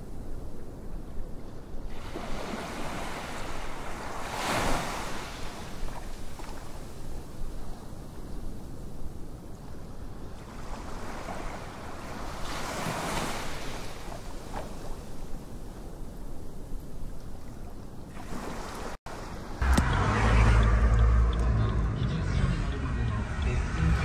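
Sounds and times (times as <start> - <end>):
small waves lapping on beach: 0.0 - 19.6.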